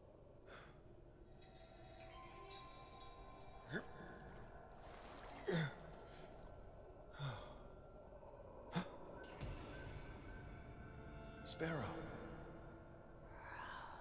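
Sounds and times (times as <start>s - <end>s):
person sighing breaths: 7.1s - 7.8s.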